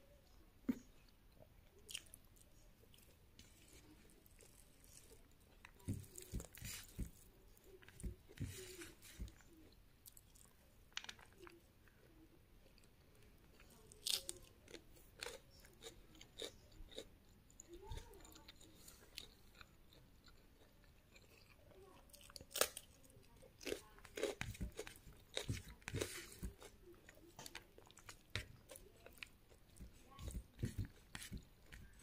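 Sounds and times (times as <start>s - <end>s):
person chewing crunchy food: 2.8s - 12.0s, 12.6s - 32.0s.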